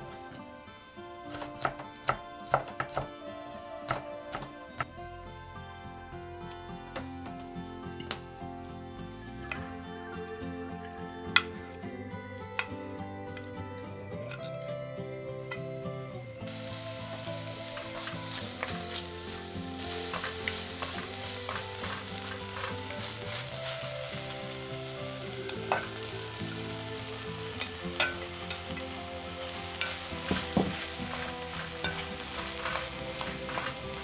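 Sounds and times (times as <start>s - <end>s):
vegetables sizzling in hot oil: 16.4s - 34.0s
wooden spoon stirring: 16.5s - 24.7s, 25.3s - 34.0s.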